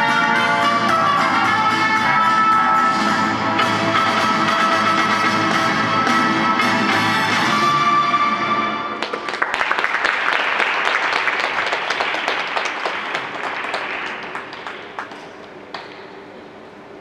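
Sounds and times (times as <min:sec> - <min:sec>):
audience applause: 0:09.0 - 0:15.9.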